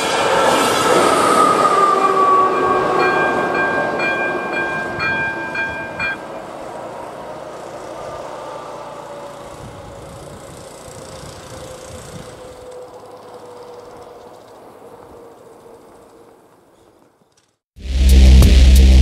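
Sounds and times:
passenger train running: 0:00.0 - 0:16.7
level crossing bell ringing: 0:02.5 - 0:06.2.

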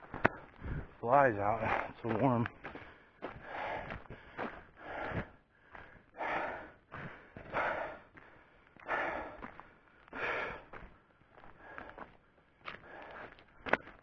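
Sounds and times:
man breathing hard: 0:00.0 - 0:01.0, 0:02.6 - 0:14.0.

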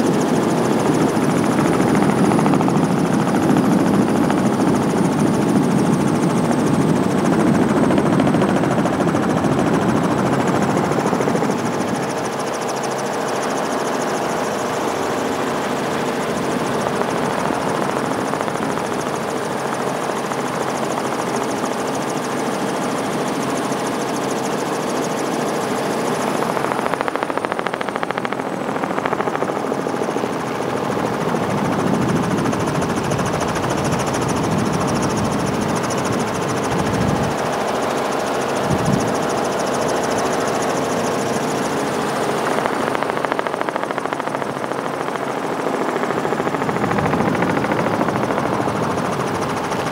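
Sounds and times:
helicopter rotor and engine noise: 0:00.0 - 0:49.9.

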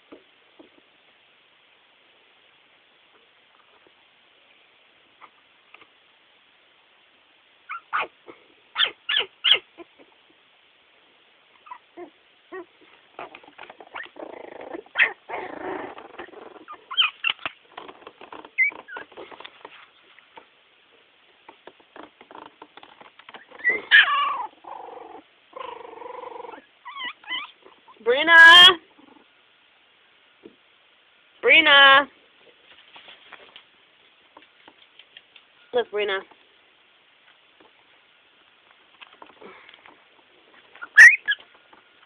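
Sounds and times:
puppies whimpering and yipping: 0:07.7 - 0:08.2, 0:08.8 - 0:10.1, 0:11.6 - 0:17.6, 0:18.5 - 0:19.3, 0:23.3 - 0:24.7, 0:25.6 - 0:28.0, 0:40.8 - 0:41.5
puppies whining: 0:07.7 - 0:08.2, 0:08.8 - 0:10.1, 0:11.6 - 0:19.4, 0:23.3 - 0:28.0, 0:40.7 - 0:41.6
shuffling: 0:14.8 - 0:24.0, 0:32.1 - 0:36.6, 0:37.2 - 0:42.0.

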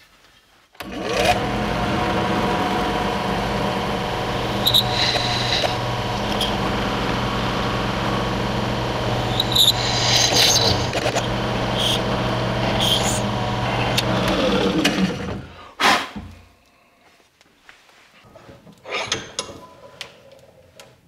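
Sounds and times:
drill bit scraping: 0:00.8 - 0:15.3
drill press motor running: 0:00.8 - 0:15.5.

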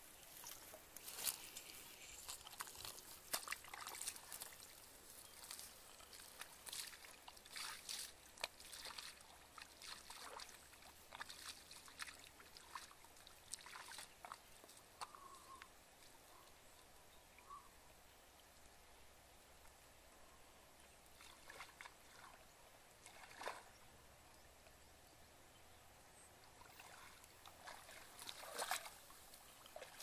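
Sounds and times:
bare feet squelching in mud: 0:00.1 - 0:15.3, 0:21.2 - 0:22.4, 0:23.0 - 0:23.7, 0:26.6 - 0:30.0.

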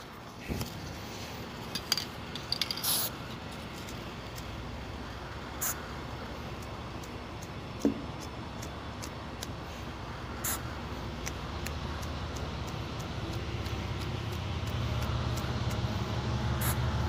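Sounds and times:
short spray hisses: 0:02.8 - 0:03.2.

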